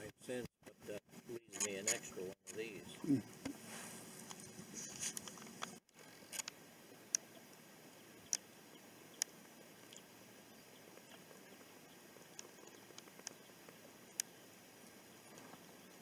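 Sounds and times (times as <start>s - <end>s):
faint background hiss: 0.0s - 16.0s
sharp isolated clicks: 5.1s - 7.3s, 9.2s - 10.1s, 12.3s - 13.4s.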